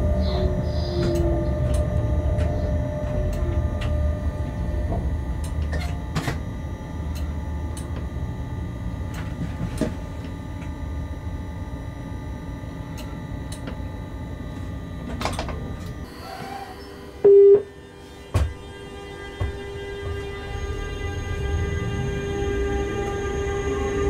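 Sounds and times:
locomotive rumble from cab: 0.0 - 11.8.

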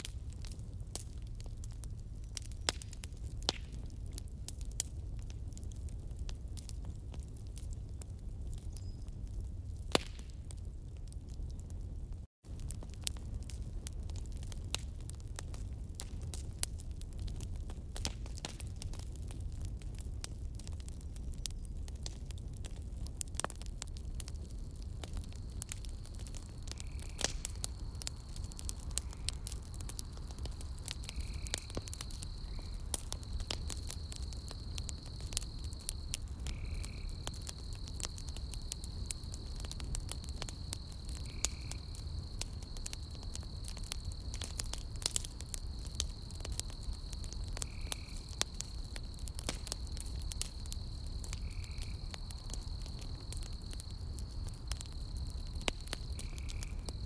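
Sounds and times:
campfire crackling and popping: 0.0 - 57.0
high insect trill: 25.4 - 49.2, 49.8 - 57.0.

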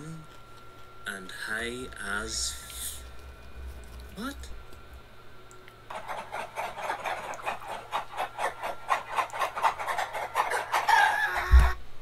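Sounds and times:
chickens clucking: 6.0 - 11.8.

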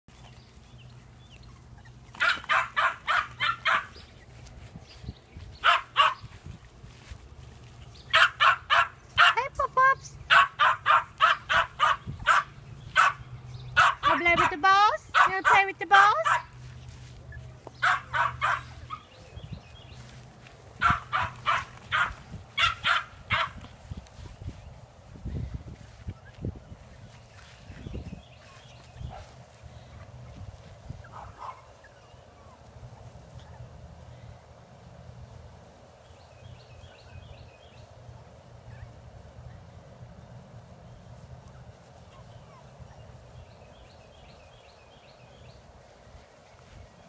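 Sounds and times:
puppies yapping: 0.2 - 6.4, 7.6 - 23.7, 28.4 - 33.8, 41.1 - 43.8
puppy yapping: 1.8 - 4.0, 10.3 - 13.2, 17.8 - 19.1.

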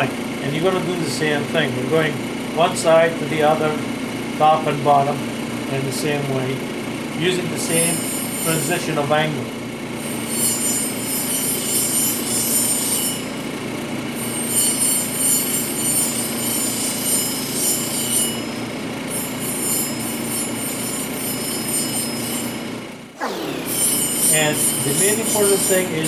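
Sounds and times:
stone grinding whine: 7.7 - 9.0, 10.0 - 13.4, 14.2 - 26.0
motor humming: 23.1 - 26.0.

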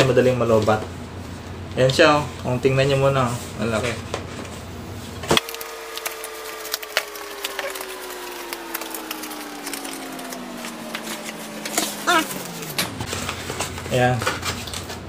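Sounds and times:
hum sliding down in pitch: 5.4 - 13.9.

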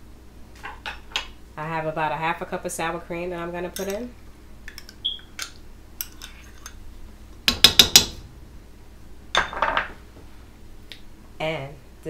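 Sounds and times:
spoon clinking against glass bowl: 3.8 - 4.0.

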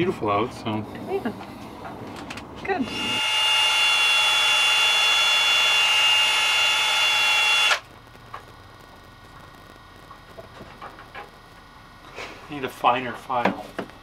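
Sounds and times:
power drill whining: 2.8 - 7.8.

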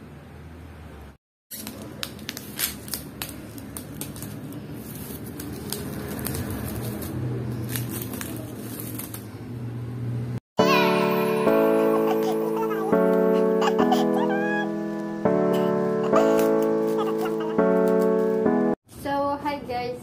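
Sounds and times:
plastic wrapping crinkling: 1.5 - 9.4.

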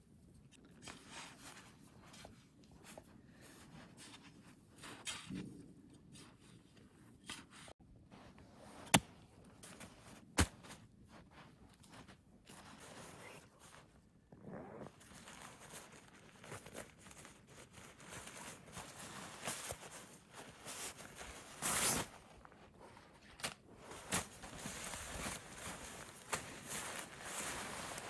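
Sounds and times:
nylon tent fabric rustling: 14.7 - 28.0.

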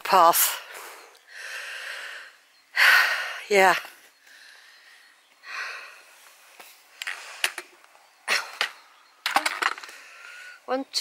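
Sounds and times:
person breathing out hard: 0.7 - 3.4.

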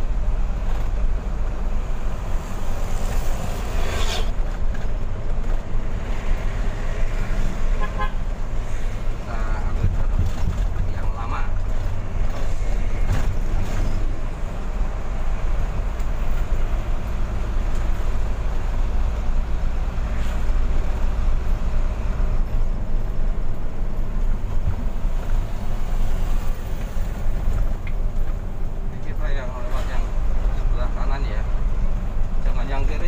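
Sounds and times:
road noise: 0.0 - 33.0
truck engine drone from cab: 0.0 - 33.0.

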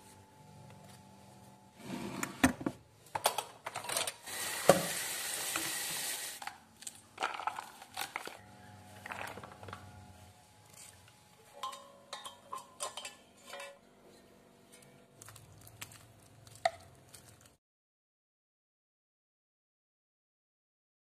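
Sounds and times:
tap water running: 4.2 - 6.4.

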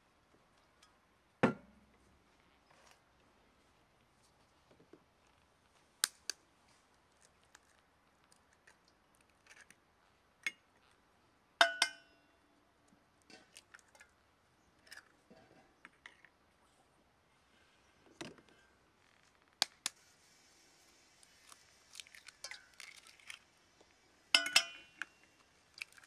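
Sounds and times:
eggs cracking on bowl rim: 24.4 - 26.0.

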